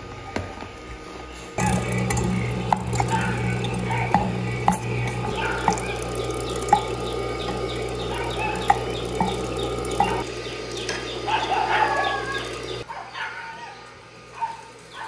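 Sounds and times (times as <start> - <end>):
meat grinder humming: 1.6 - 12.9
high chirping: 3.0 - 12.9.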